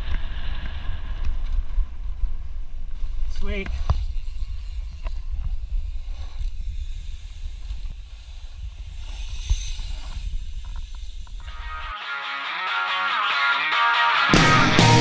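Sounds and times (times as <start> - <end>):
wind rumble on camera: 0.0 - 11.5.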